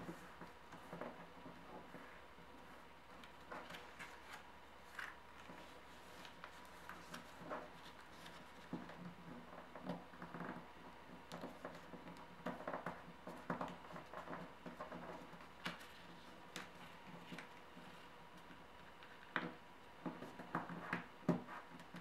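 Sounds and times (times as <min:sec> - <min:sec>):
paper rustling and crinkling: 0:03.2 - 0:09.2, 0:13.4 - 0:19.3.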